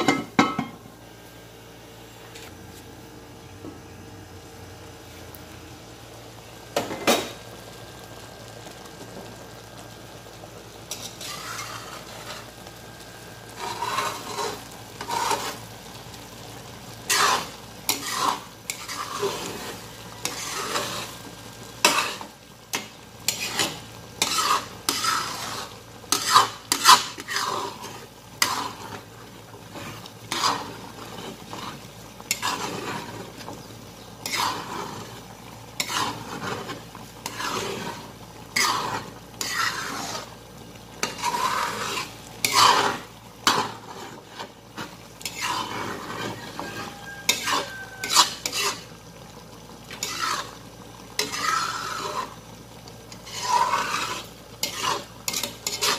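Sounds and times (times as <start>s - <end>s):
simmering pot hiss: 0.0s - 55.9s
metal spatula scraping a wok: 10.9s - 12.6s, 13.5s - 15.6s, 17.0s - 33.6s, 34.2s - 35.2s, 35.8s - 40.3s, 41.0s - 49.0s, 49.9s - 50.6s, 51.2s - 52.4s, 53.1s - 55.9s.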